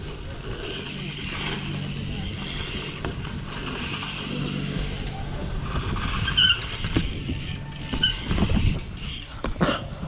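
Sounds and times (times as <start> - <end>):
bike tyre noise on dirt: 0.0 - 10.0
wind rumble on microphone: 0.0 - 10.0
short squeaks: 6.1 - 9.3.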